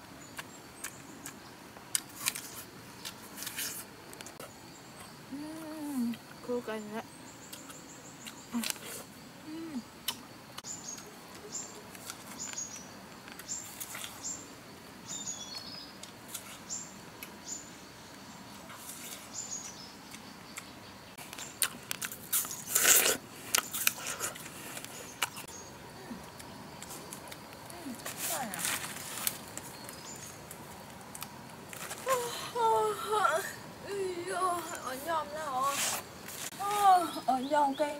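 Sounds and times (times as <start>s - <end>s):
bird chirping: 4.4s - 21.7s, 23.6s - 31.2s, 34.4s - 37.9s.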